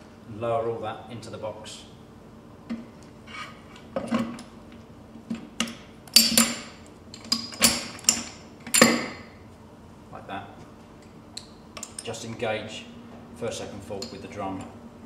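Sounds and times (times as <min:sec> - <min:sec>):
metal parts clinking and knocking: 0:06.1 - 0:09.1.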